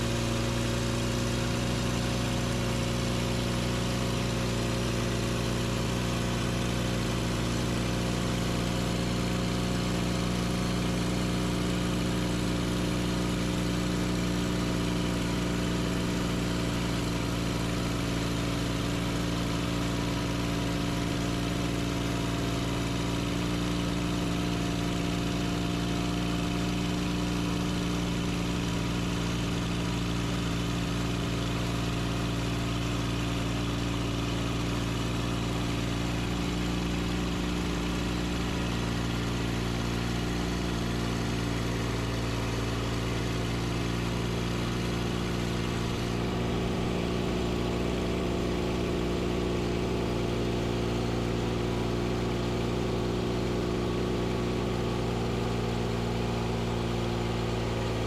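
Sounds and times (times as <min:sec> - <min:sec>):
sawmill engine running: 0:34.9 - 0:58.0.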